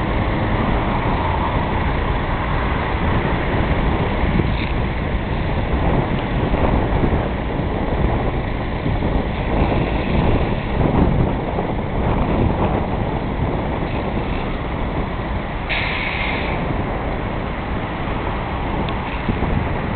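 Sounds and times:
truck engine running: 0.0 - 19.9
liquid spraying onto road: 9.0 - 18.3.

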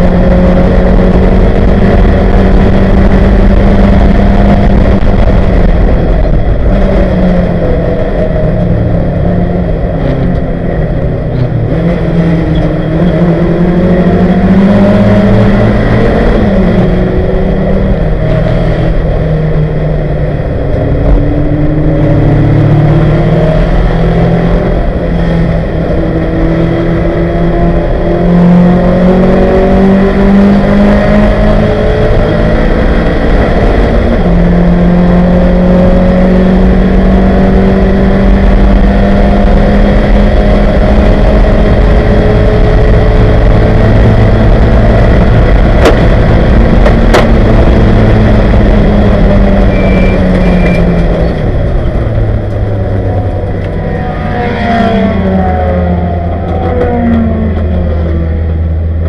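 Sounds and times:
race car engine at full throttle: 0.0 - 59.0.

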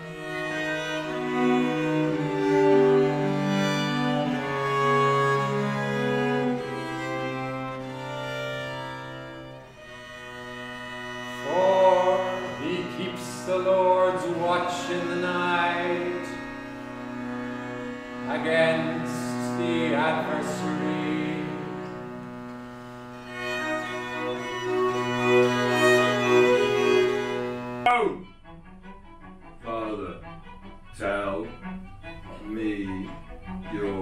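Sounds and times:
cello quartet playing slow piece: 0.0 - 34.0.

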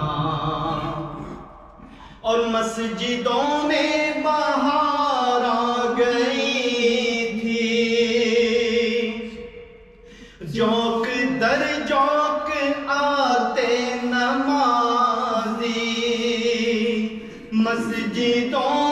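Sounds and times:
man singing unaccompanied: 2.2 - 9.5, 10.4 - 18.9.

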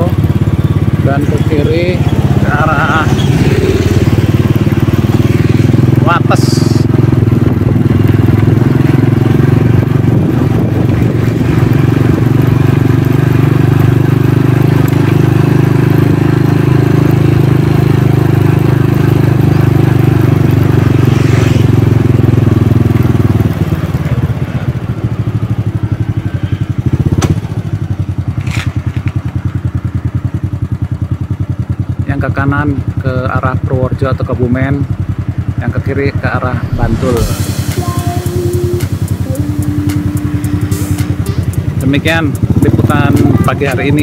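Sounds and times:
motorcycle engine running: 0.0 - 44.0.

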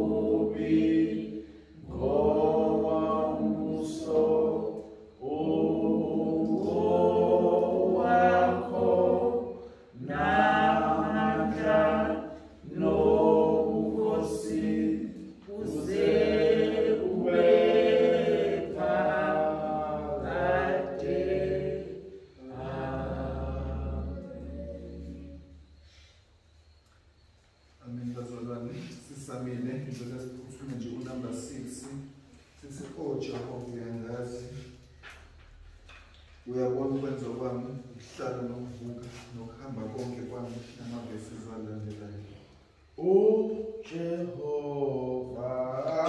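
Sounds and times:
unaccompanied hymn singing: 0.0 - 26.4, 27.6 - 46.0.

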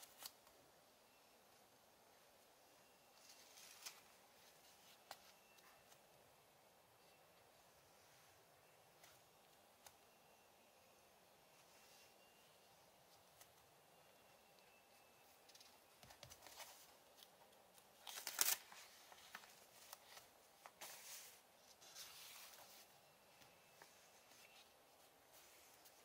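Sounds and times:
paper pages rustling: 15.4 - 26.0.

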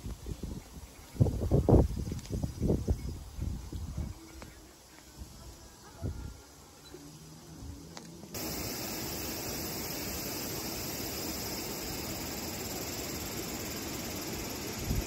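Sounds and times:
river water rushing: 8.4 - 14.8.

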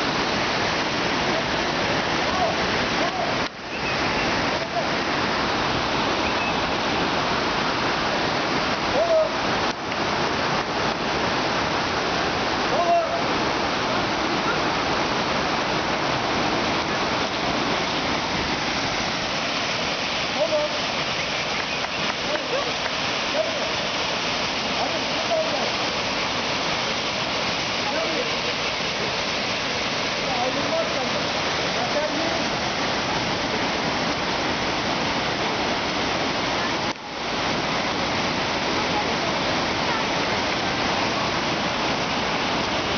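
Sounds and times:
waterfall rushing: 0.0 - 42.9.

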